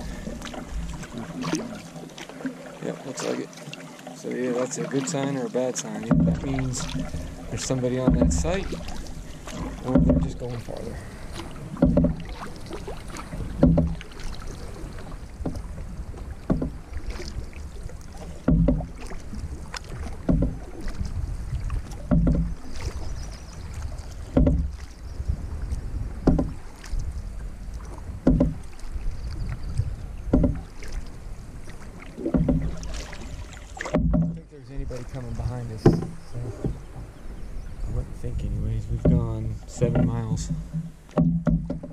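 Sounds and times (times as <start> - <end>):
canoe paddle strokes splashing: 0.0 - 41.9
rush of water and wind: 0.0 - 41.9.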